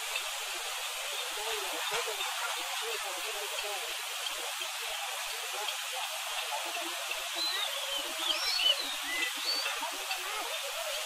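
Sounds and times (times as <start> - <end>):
river rushing over boulders: 0.0 - 11.0
bird chirping: 7.3 - 9.8.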